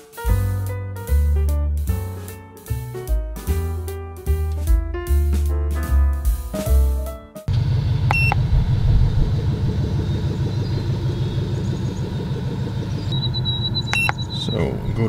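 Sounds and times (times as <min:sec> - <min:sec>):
car engine idling: 0:07.5 - 0:15.0
short electronic beep: 0:08.1 - 0:08.4, 0:13.1 - 0:14.6.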